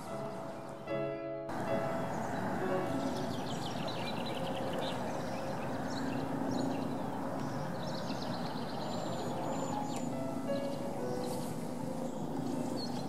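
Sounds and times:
small birds chirping: 1.7 - 13.0
steady low hiss: 9.3 - 13.0.

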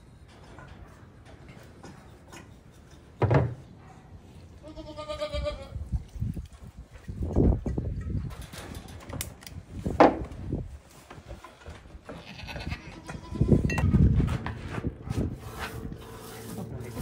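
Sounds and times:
goats bleating: 4.6 - 5.8, 12.1 - 13.6
low rumbles and bumps: 13.5 - 15.9.

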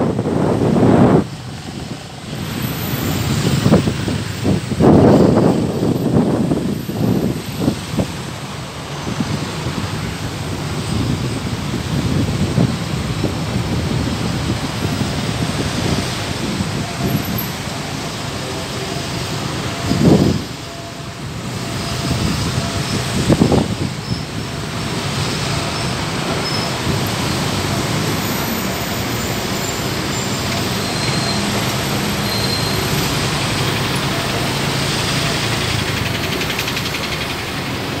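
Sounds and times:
car and bus engines running: 0.0 - 38.0.

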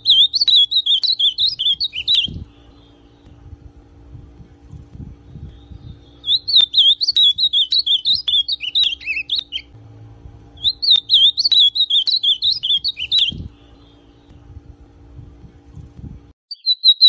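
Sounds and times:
bird singing warbled phrases: 0.0 - 3.5, 4.4 - 9.8, 10.6 - 14.4, 16.5 - 17.0.

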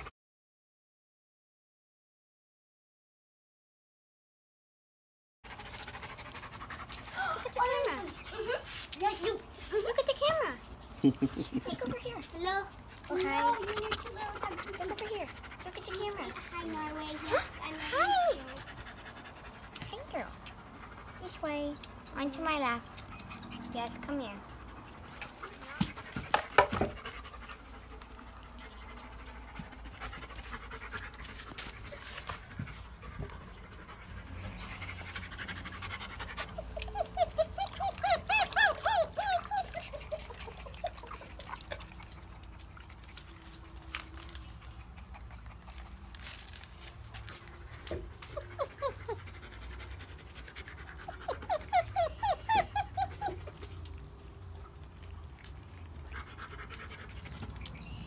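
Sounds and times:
puppies whining: 10.8 - 46.4, 47.4 - 56.0.

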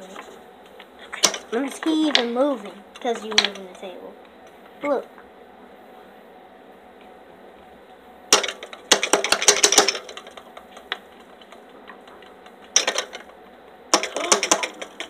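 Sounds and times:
small hard objects rattling: 8.3 - 15.0.

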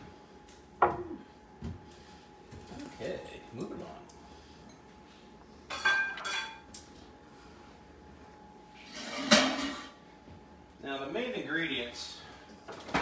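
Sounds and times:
dishes and utensils clinking: 5.7 - 6.9, 8.8 - 10.0.

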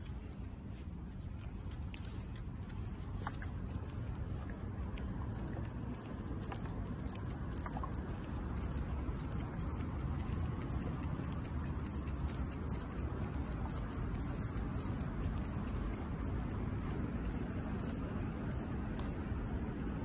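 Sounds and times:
dog's paws on pavement: 0.0 - 20.0
footsteps on damp pavement: 0.0 - 20.0.

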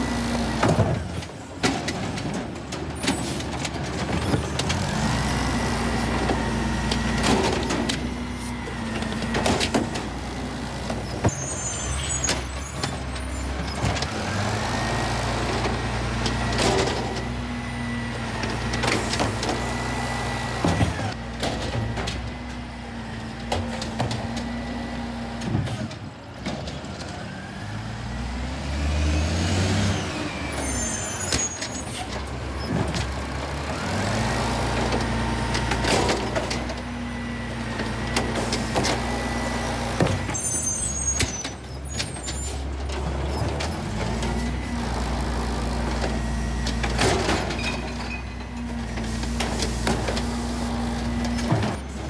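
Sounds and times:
truck engine revving: 27.5 - 31.1, 32.2 - 40.5.

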